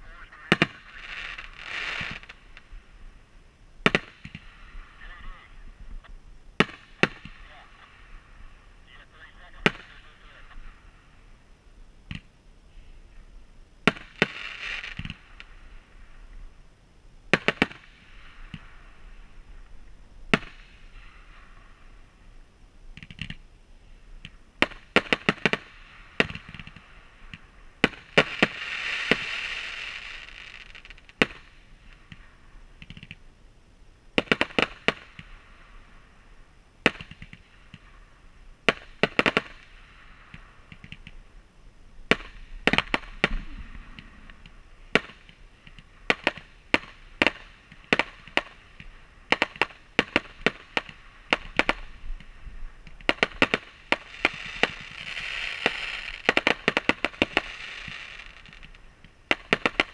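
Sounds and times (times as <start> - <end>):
fireworks banging: 0.0 - 3.1, 3.8 - 8.2, 9.4 - 10.8, 13.8 - 15.6, 17.3 - 19.6, 20.3 - 21.9, 24.2 - 33.2, 34.2 - 35.6, 36.8 - 38.0, 38.6 - 41.3, 42.0 - 59.9
fireworks hissing: 0.0 - 11.5, 12.1 - 16.3, 23.0 - 33.1, 42.1 - 59.9.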